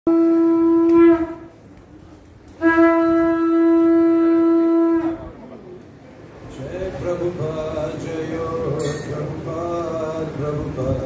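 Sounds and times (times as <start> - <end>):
conch shell blasts: 0.1 - 1.5, 2.6 - 5.4.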